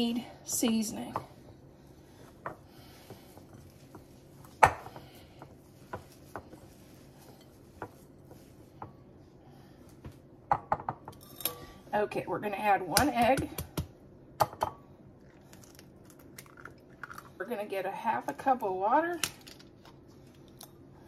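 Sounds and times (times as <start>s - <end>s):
hands mixing meat in bowl: 0.5s - 9.2s.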